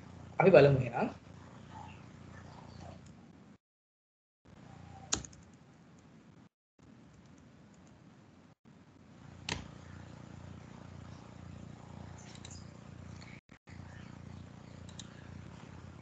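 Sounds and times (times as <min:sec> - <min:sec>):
faint low room hum: 0:00.0 - 0:03.6, 0:04.5 - 0:16.0
computer mouse clicks: 0:05.1 - 0:06.1, 0:12.2 - 0:12.6, 0:14.8 - 0:15.2.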